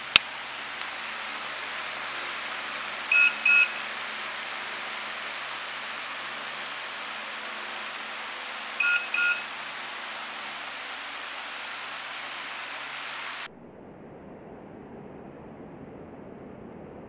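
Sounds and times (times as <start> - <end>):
steady hiss: 0.0 - 13.5
short electronic beeps: 3.1 - 3.8, 8.8 - 9.4.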